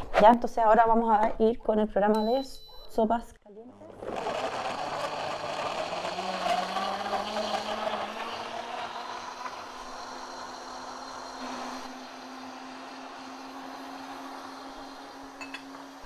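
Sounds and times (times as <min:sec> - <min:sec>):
blender churning vegetables: 0:03.6 - 0:16.0
blender motor hum: 0:03.6 - 0:16.0.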